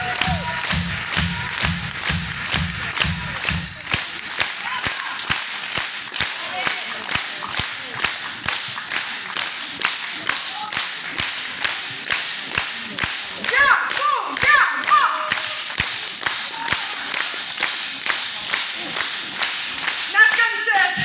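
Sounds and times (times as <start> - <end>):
cheering shouts: 0.0 - 1.8, 4.3 - 5.3, 13.5 - 15.6, 16.4 - 17.1
audience rhythmic clapping: 0.0 - 21.0
general applause: 0.0 - 21.0.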